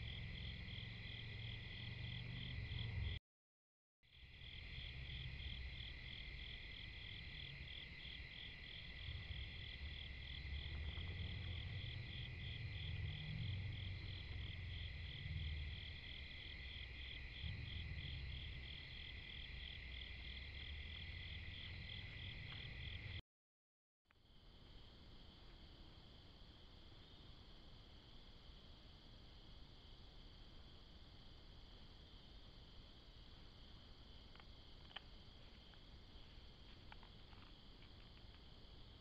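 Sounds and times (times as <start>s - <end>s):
crickets and katydids chirping: 0.0s - 3.2s, 4.1s - 23.2s
low rumble: 8.9s - 19.6s.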